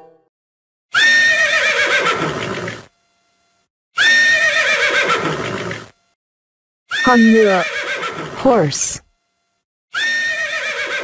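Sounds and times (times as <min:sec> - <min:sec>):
horse whinnying: 0:01.0 - 0:02.9, 0:04.0 - 0:05.9, 0:06.9 - 0:08.4, 0:10.0 - 0:11.0.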